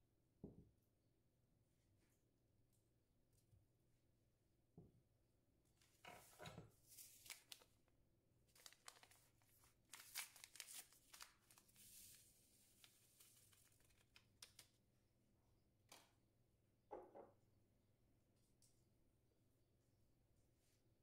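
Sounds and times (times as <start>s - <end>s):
paper packet tearing and crinkling: 7.1s - 7.7s, 8.6s - 12.2s, 12.8s - 14.6s.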